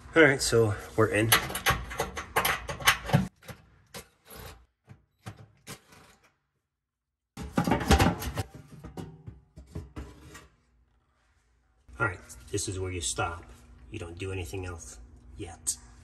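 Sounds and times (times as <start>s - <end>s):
tools clicking and knocking on metal: 1.2s - 4.2s.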